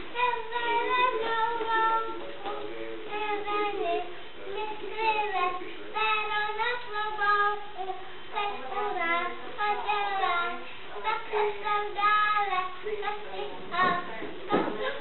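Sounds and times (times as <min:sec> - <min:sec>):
children singing: 0:00.0 - 0:07.8.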